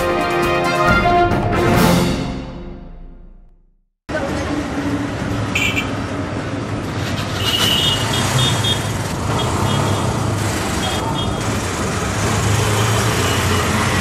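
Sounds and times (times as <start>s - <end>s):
auto-rickshaw engines running: 4.1s - 14.0s
traffic hum: 4.1s - 14.0s.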